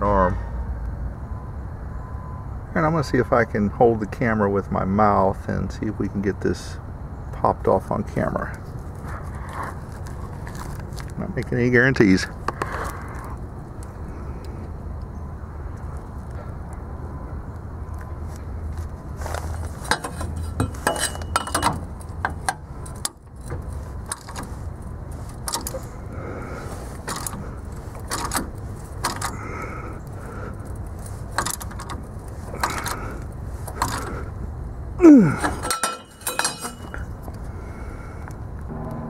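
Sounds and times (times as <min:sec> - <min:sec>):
low steady hum: 0:02.3 - 0:39.0
loud sound falling in pitch: 0:38.7 - 0:39.0.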